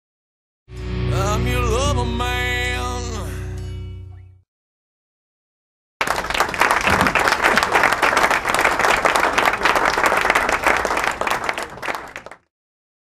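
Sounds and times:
crowd applause: 6.0 - 12.5.

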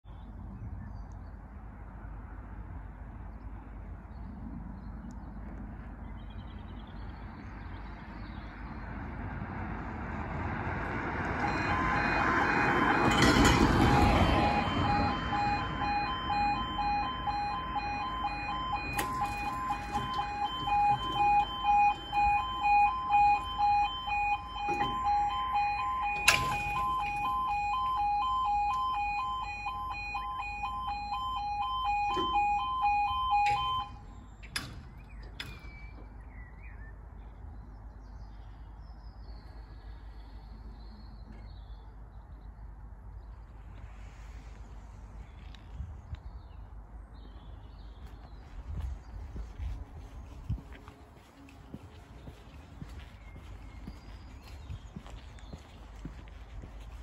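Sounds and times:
road vehicle passing: 5.5 - 34.0, 48.1 - 57.0
level crossing warbling alarm: 11.3 - 34.0.

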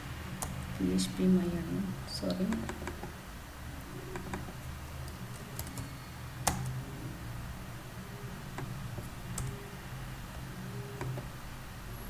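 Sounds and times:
steady low hum: 0.0 - 12.0
computer keyboard keystrokes: 5.3 - 6.7, 9.3 - 9.6.

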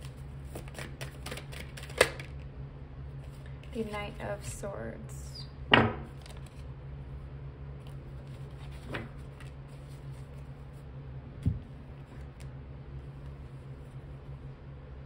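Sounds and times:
cards slapping and rustling: 0.0 - 2.4, 6.1 - 6.7, 7.8 - 10.8.

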